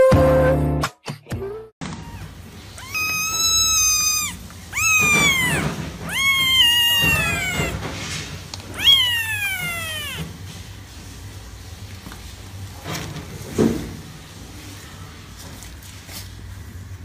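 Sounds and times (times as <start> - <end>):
kitten meowing: 1.9 - 7.9, 8.7 - 10.3.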